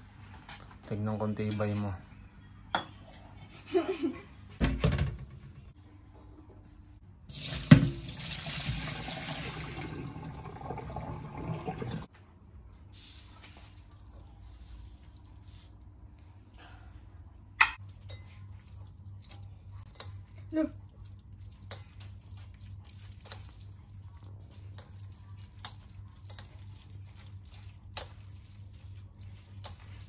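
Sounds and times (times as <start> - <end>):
water running into a sink: 7.3 - 12.1.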